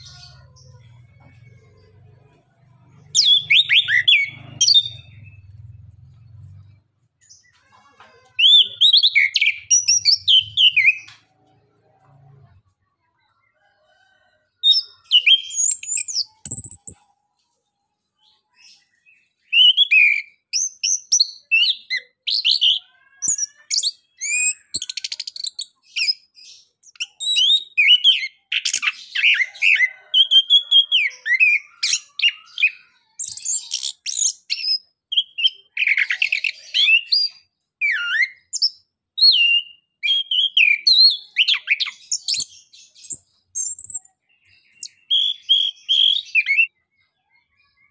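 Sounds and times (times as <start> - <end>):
thrush singing whistled phrases: 44.6 - 46.7.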